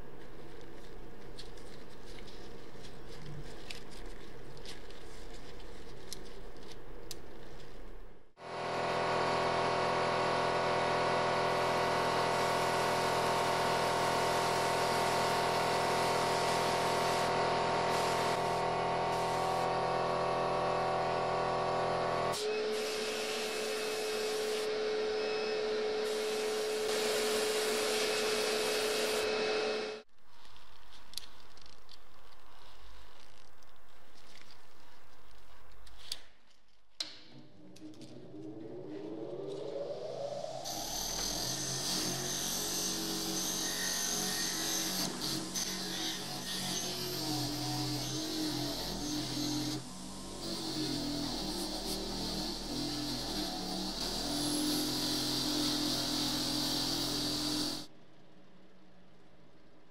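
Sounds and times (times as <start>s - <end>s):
air die grinder grinding metal: 12.0s - 30.0s.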